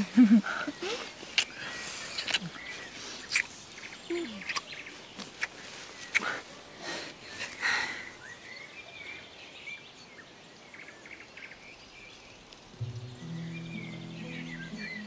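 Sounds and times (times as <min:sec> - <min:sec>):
small birds chirping: 0:00.0 - 0:15.0
low film score music: 0:12.7 - 0:15.0.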